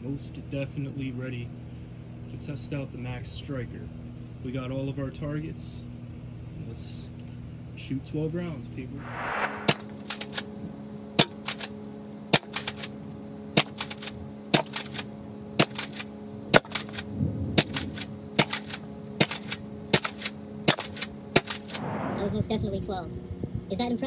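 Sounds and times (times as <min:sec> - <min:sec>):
foam dart blaster firing: 0:21.5 - 0:22.5.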